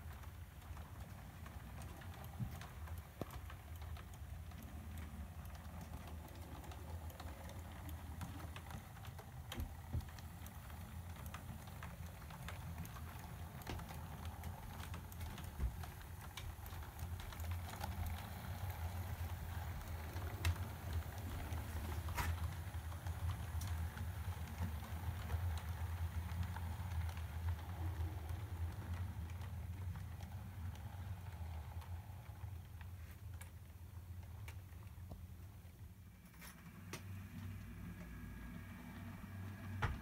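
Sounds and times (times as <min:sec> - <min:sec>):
model train motor hum: 0:00.0 - 0:32.9
wheels clicking over rail joints: 0:00.0 - 0:40.0.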